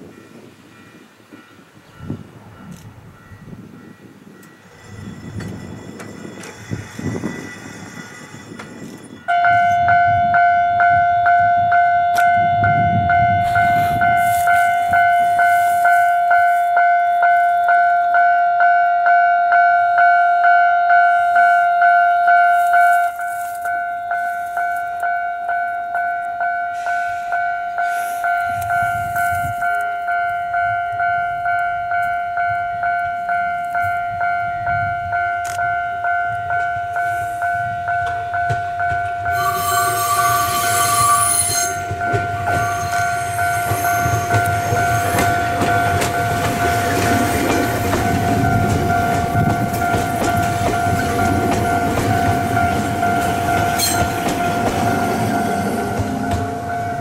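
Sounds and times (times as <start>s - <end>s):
electric train rumble: 0.0s - 57.0s
level crossing warning bell: 0.0s - 57.0s.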